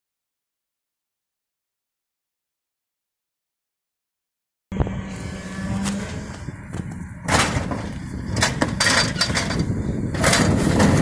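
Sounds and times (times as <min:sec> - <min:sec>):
truck engine: 0:04.7 - 0:11.0.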